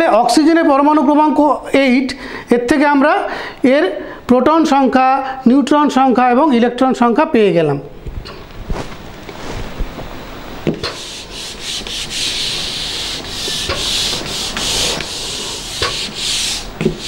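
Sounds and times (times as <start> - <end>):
eraser rubbing on whiteboard: 10.8 - 17.0.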